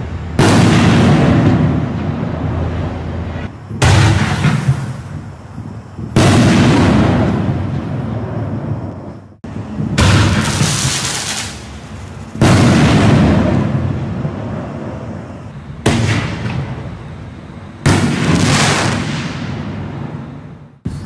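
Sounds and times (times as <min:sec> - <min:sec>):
shell bursting overhead: 0:06.0 - 0:08.5, 0:09.9 - 0:16.9, 0:17.8 - 0:20.1.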